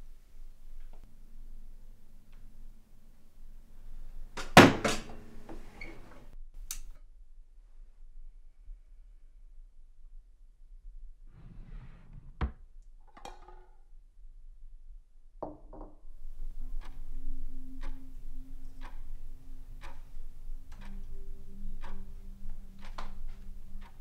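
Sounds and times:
tense film score drone: 0.0 - 5.6, 16.2 - 24.0
sharp click: 6.6 - 7.0
slow clock-like ticking: 16.2 - 24.0.

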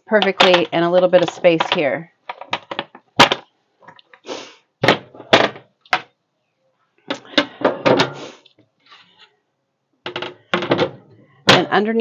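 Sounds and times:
plastic dish drainer clattering: 0.2 - 3.4.

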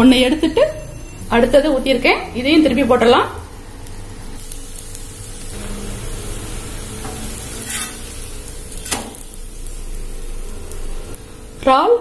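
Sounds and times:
food sizzling in oil: 0.0 - 12.0
metal spatula scraping griddle: 6.8 - 9.1.

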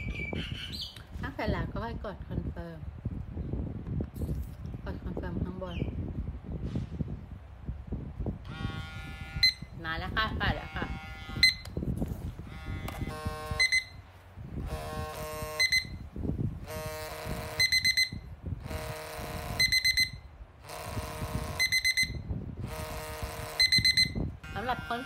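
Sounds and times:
vibration motor buzzing: 8.5 - 9.8, 10.4 - 25.0
quick high beeps: 13.6 - 14.0, 15.6 - 16.0, 17.6 - 18.3, 19.6 - 20.3, 21.6 - 22.3, 23.6 - 24.3.

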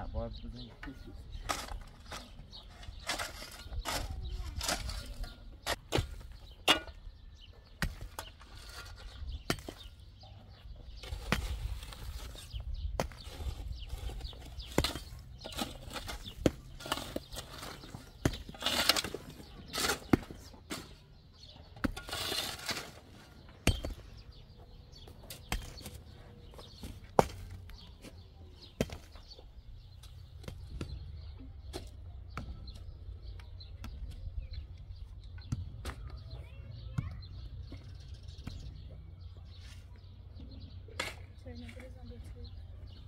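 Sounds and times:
dirt and stones scraping and tumbling: 0.7 - 36.6
mattock striking stony soil: 21.7 - 27.8.

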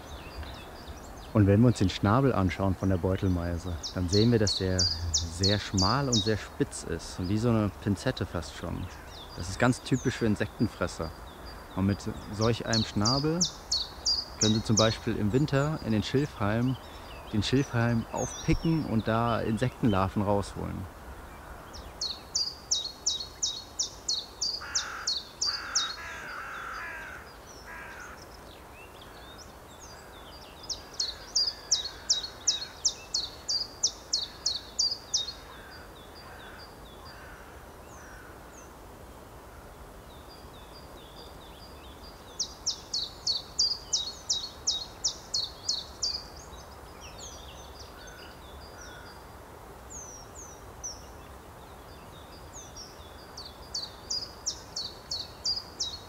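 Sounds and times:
songbird singing high falling notes: 0.0 - 8.2, 9.1 - 20.8
fainter lower bird calls: 0.0 - 56.0.

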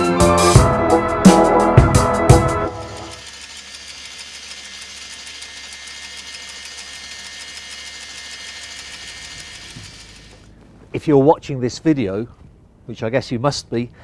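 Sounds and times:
anchor chain over roller: 2.8 - 10.5.

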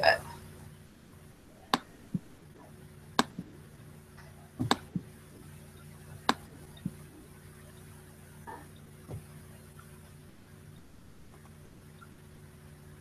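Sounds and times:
faint steady hum: 0.0 - 13.0
sharp clicks: 3.2 - 3.5.

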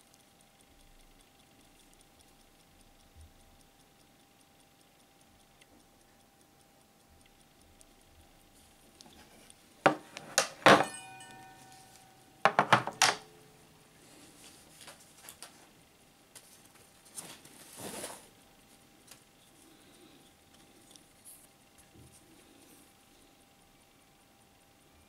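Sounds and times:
mechanical watch ticking: 0.0 - 13.1, 18.5 - 24.8
knocks with metallic ring: 9.9 - 13.4.

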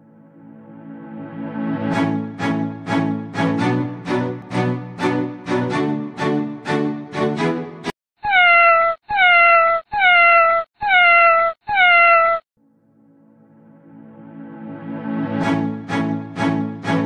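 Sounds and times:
soft music: 0.0 - 7.9, 12.6 - 17.0
string music: 0.0 - 7.9, 12.8 - 17.0
cat meowing: 8.2 - 12.4.

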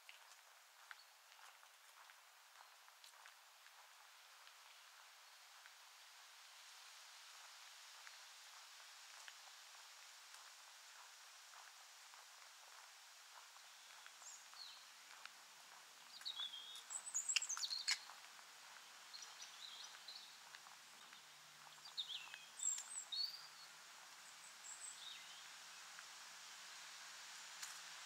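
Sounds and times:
faint outdoor hiss: 0.0 - 28.0
small birds chirping: 9.4 - 26.1.

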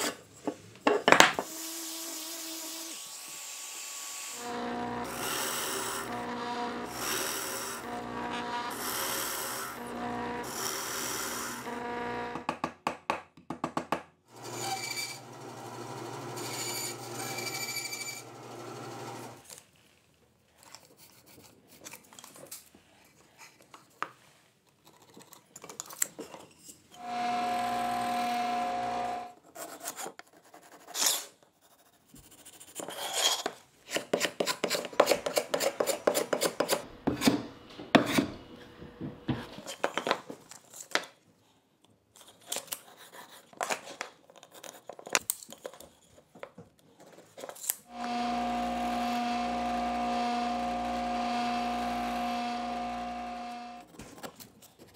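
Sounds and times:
bandsaw cutting wood: 1.4 - 12.5, 14.3 - 19.4, 27.0 - 29.4, 47.8 - 53.9
orbital sander running: 4.3 - 12.5, 27.0 - 29.4, 47.9 - 53.8
machine whir: 4.4 - 12.4, 27.0 - 29.4, 47.9 - 53.9
hand tool scraping wood: 32.7 - 38.4.

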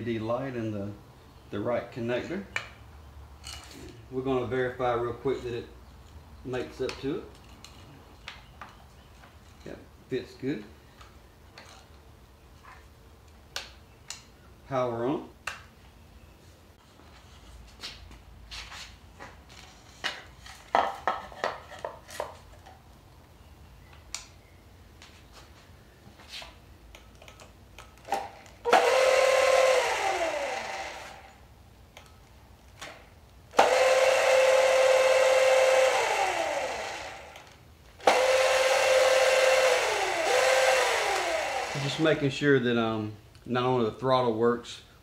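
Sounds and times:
electric scooter motor whine: 28.7 - 31.4, 33.6 - 42.0.

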